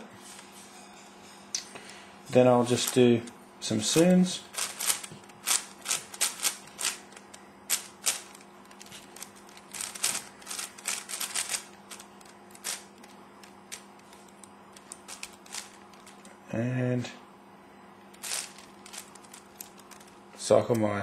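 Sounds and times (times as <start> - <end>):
plastic puzzle clicking: 4.0 - 16.3, 18.2 - 20.2.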